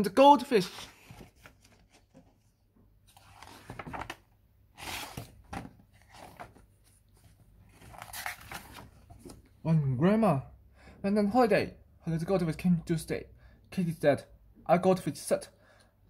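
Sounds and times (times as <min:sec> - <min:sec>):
book pages turning: 0:00.6 - 0:09.5.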